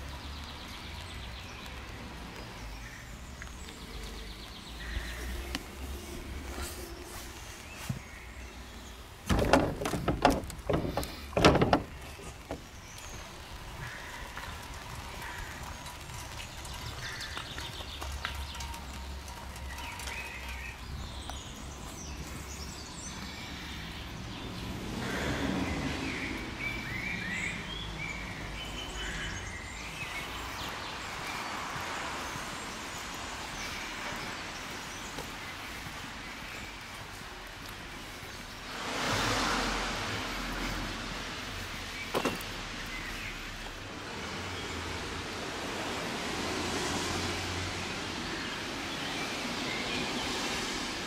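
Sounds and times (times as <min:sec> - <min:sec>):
outdoor background noise: 0:00.0 - 0:51.0
wooden door knocks and rattles: 0:09.3 - 0:12.6.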